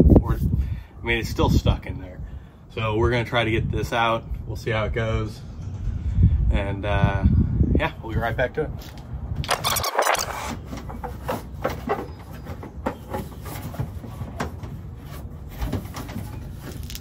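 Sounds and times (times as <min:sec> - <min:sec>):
parts being handled: 0:08.8 - 0:17.0.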